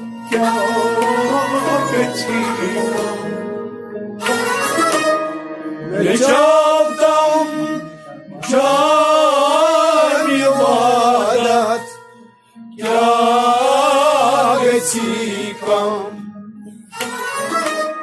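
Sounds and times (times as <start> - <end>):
faint steady accompaniment: 0.0 - 18.0
man singing: 0.4 - 3.5, 5.8 - 12.0.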